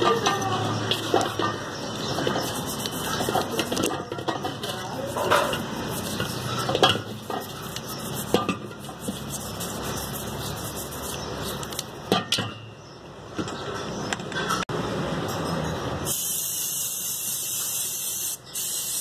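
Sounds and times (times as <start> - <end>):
metal clanks in a metal basin: 0.0 - 2.4, 3.2 - 7.6, 12.1 - 12.7.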